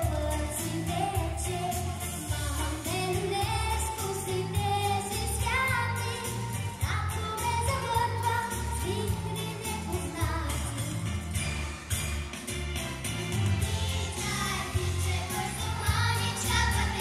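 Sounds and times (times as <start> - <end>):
backing track with steady beat: 0.0 - 17.0
children's group singing: 14.0 - 17.0.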